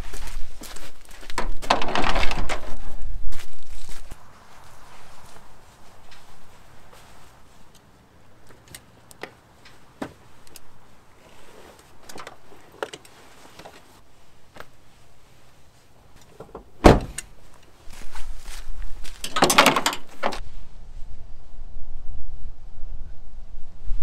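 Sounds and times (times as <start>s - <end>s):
loud thump: 16.8s - 17.2s.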